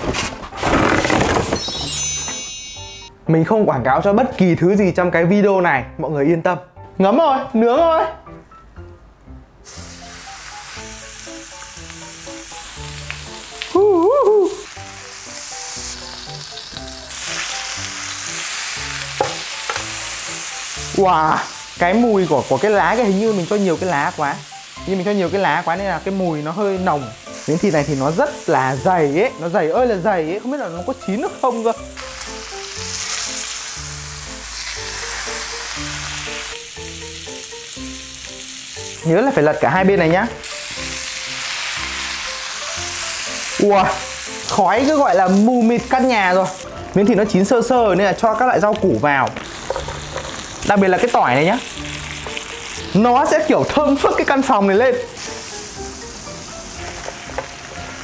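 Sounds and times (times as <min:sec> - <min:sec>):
light background music: 0:00.0 - 0:58.0
steak sizzling on a grill plate: 0:09.6 - 0:46.9, 0:47.9 - 0:58.0.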